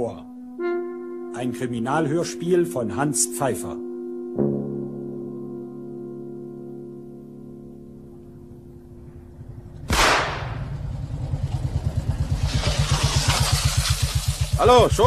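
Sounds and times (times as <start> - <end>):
motorcycle engine running: 9.3 - 15.0
shotgun shot with echo: 9.9 - 10.8.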